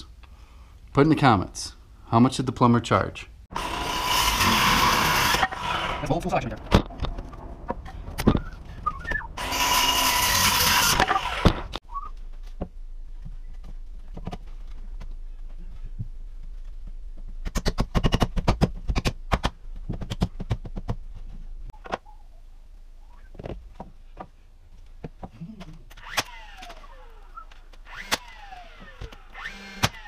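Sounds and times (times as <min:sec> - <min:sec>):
circular saw cutting wood: 0:03.5 - 0:06.8, 0:08.9 - 0:11.8, 0:26.0 - 0:30.0.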